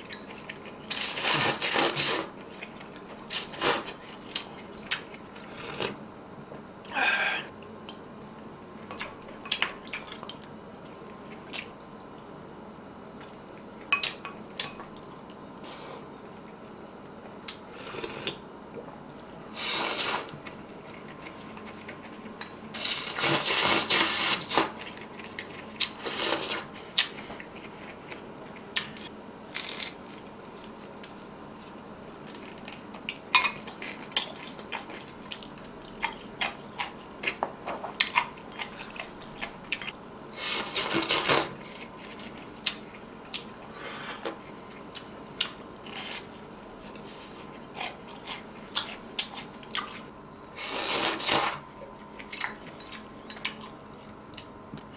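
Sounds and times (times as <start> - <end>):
biting and chewing fried food: 19.6 - 54.9.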